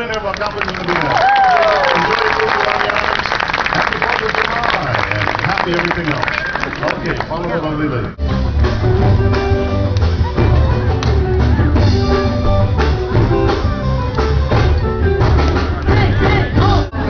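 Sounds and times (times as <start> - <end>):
live band playing upbeat music: 8.2 - 17.0.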